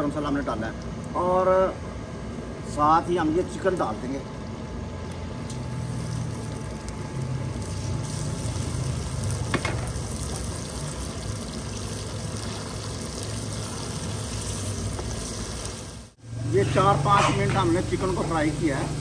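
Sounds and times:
chicken sizzling in hot oil: 5.5 - 16.2.

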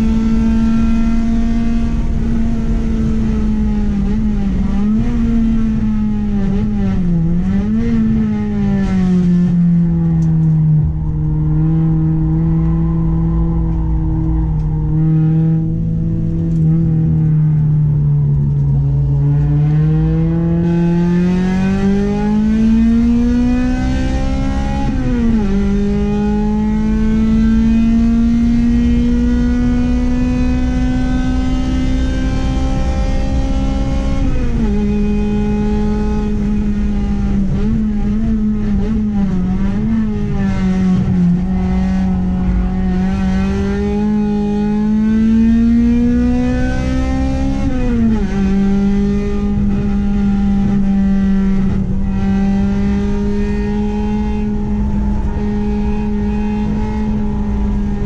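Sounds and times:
car engine accelerating hard: 0.0 - 58.0.

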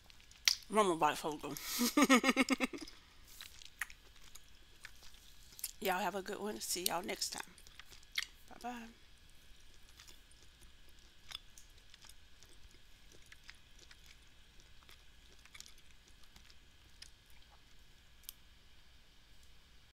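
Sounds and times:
faint low hum: 0.0 - 19.9
mouth clicks and chewing: 0.1 - 0.7, 2.8 - 5.8, 7.4 - 8.6, 9.6 - 18.4.

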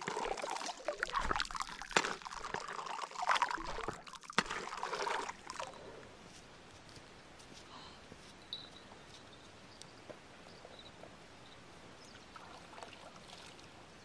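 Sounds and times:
river water splashing: 0.0 - 5.8.

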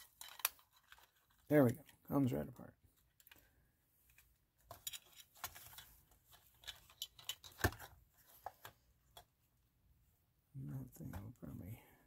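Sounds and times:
plastic parts clicking and rustling: 0.0 - 2.1, 2.9 - 9.3.

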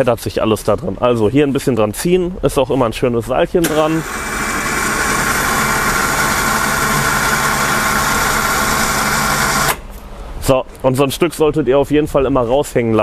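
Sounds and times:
electric winch motor whining: 3.6 - 9.8.

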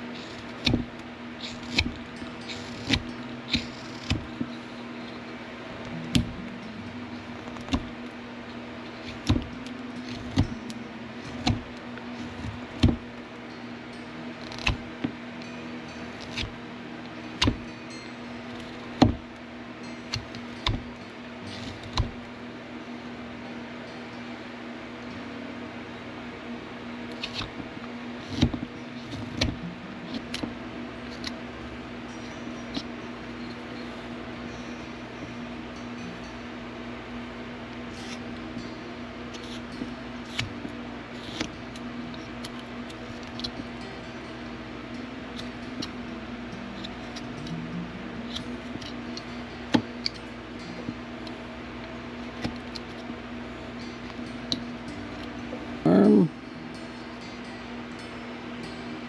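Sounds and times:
steady low hum: 0.0 - 59.0
knife cutting wood: 0.2 - 4.5.

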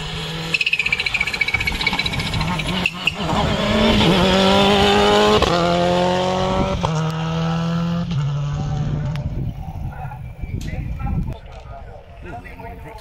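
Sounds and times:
rally car engine accelerating: 0.0 - 9.4
engine upshifts: 0.0 - 13.0.

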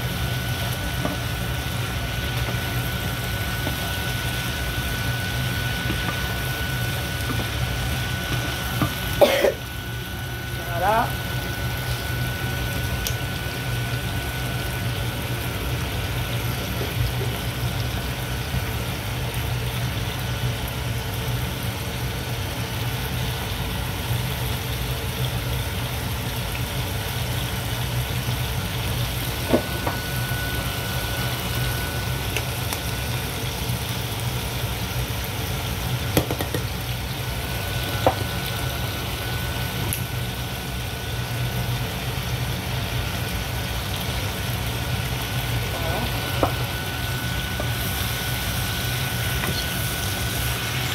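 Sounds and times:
vegetables sizzling in oil: 0.0 - 50.9.

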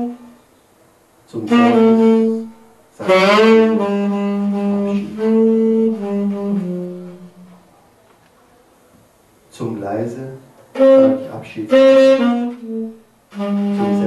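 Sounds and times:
tenor saxophone solo: 0.0 - 0.4, 1.4 - 7.7, 10.7 - 14.0.

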